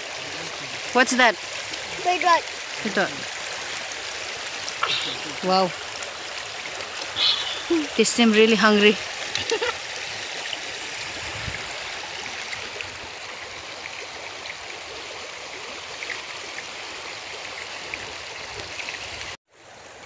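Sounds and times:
river rushing over pebbles: 0.0s - 20.0s.

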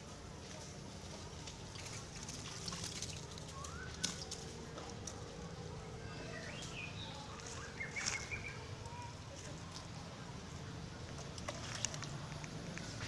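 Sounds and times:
low background hum: 0.0s - 13.0s
high chirping calls: 6.0s - 9.1s.

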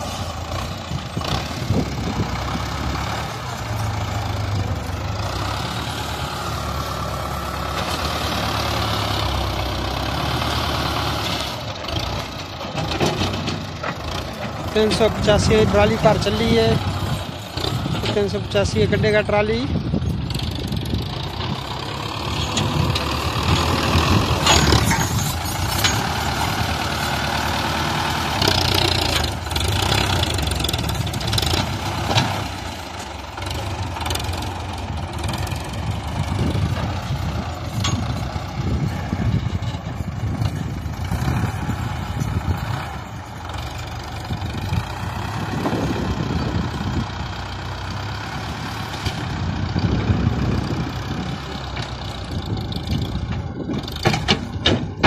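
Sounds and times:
diesel tractor engine rumble: 0.0s - 55.0s
loader scooping soil: 0.0s - 55.0s
sharp knocks: 54.0s - 55.0s.

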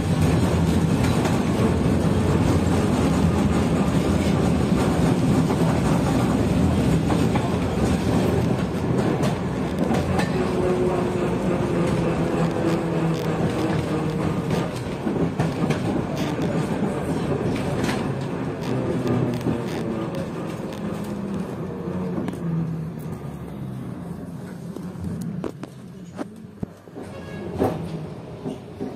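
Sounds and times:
wheels clicking over rail joints: 0.0s - 21.5s
tram running gear rumble: 0.0s - 28.9s.

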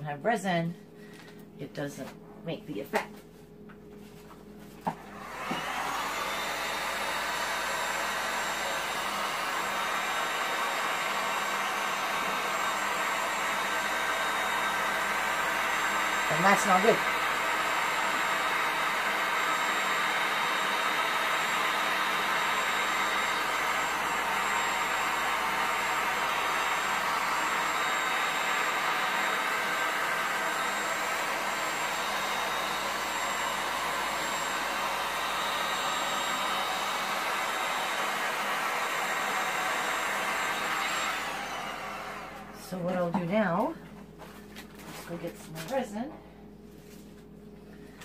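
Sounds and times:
heat gun blowing air: 4.9s - 43.2s.

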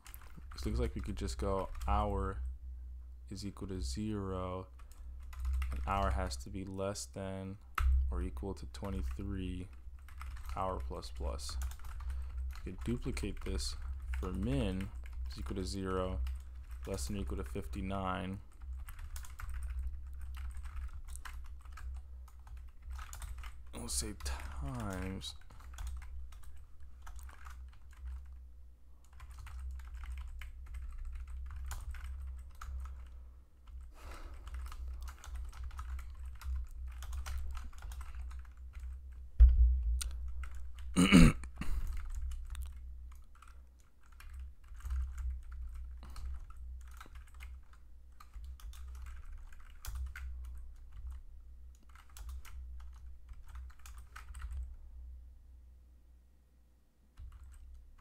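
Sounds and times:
keyboard typing: 0.0s - 2.1s, 4.8s - 6.3s, 7.8s - 28.4s, 29.0s - 54.8s, 57.2s - 58.0s
loud thump: 39.4s - 40.0s.

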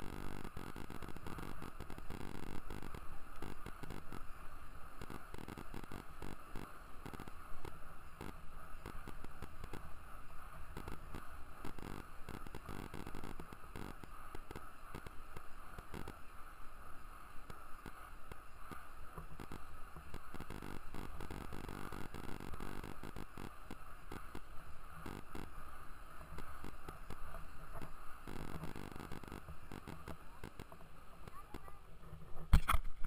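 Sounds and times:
small wheels rolling on asphalt: 0.0s - 32.8s.

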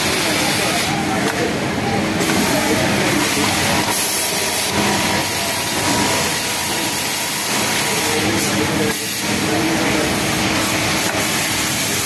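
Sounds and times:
sewing machine running: 0.0s - 12.0s.

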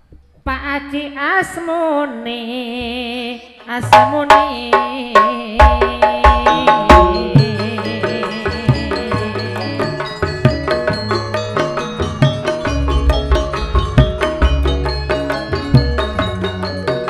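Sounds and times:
sharp drum strokes: 3.8s - 7.7s, 10.5s - 17.0s
ringing metallophone tones: 3.9s - 17.0s
person singing long wavering note: 6.3s - 9.8s.

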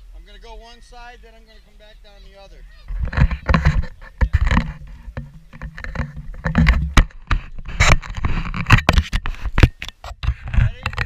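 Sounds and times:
camera handling knocks and thumps: 2.9s - 11.0s.

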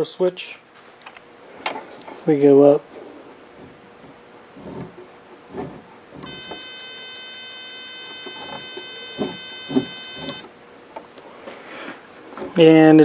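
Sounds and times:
multimeter continuity beep: 6.2s - 10.5s.

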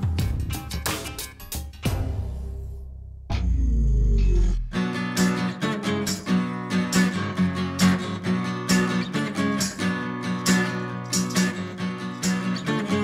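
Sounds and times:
acoustic guitar strumming: 4.6s - 13.0s.

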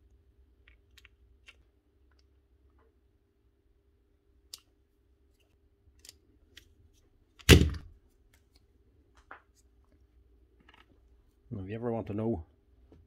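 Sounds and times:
light clicks of small parts: 5.3s - 6.7s.

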